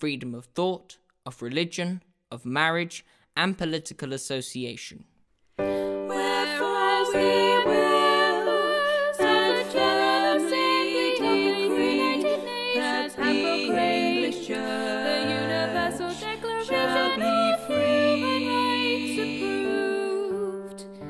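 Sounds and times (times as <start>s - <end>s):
women singing slow song: 5.6s - 21.0s.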